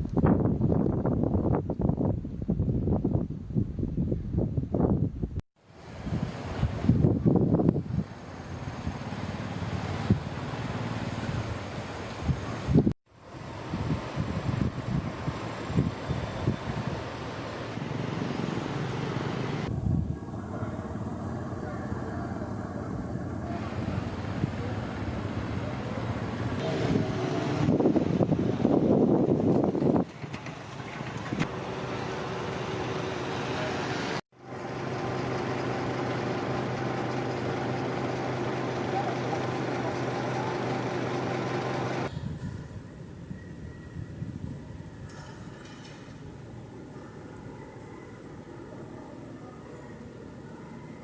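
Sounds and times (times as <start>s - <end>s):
wind buffeting microphone: 0.0s - 9.1s, 13.5s - 17.2s, 26.6s - 31.6s
traffic: 5.6s - 51.0s
vehicle engine humming: 13.3s - 42.1s
people's voices: 38.4s - 42.1s.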